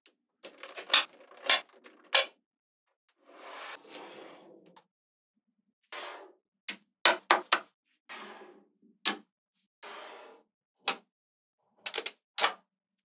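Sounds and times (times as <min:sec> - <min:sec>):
magnetic balls sliding and rattling: 0:00.4 - 0:02.3.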